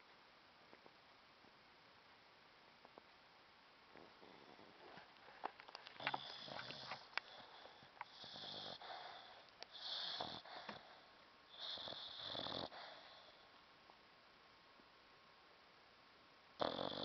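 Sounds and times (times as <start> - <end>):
dog snoring: 6.0 - 13.5, 16.6 - 17.0.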